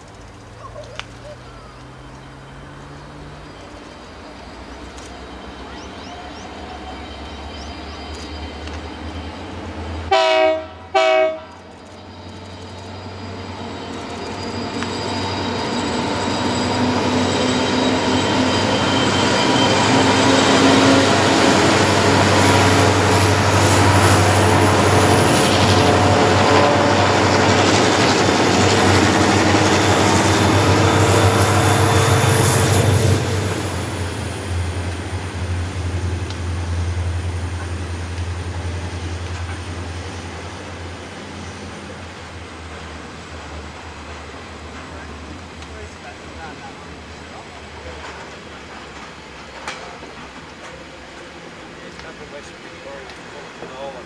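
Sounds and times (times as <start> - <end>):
diesel locomotives engine noise: 0.0 - 54.0
diesel locomotive horn blasts: 10.1 - 11.6, 19.7 - 27.7.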